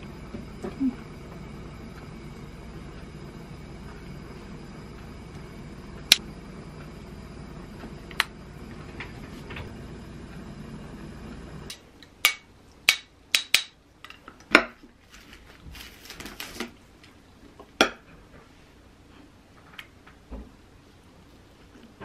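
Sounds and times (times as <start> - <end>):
low hum: 0.0 - 12.7.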